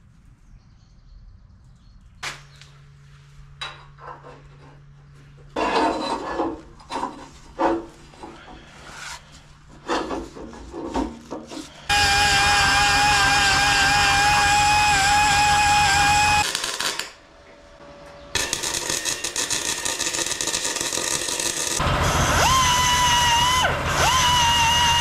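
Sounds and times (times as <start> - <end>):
metal scraping against steel: 5.5 - 11.8.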